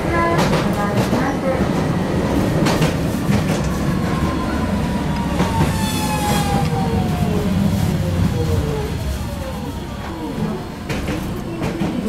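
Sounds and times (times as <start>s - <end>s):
tram low rumble: 0.0s - 12.0s
falling whine: 4.0s - 11.7s.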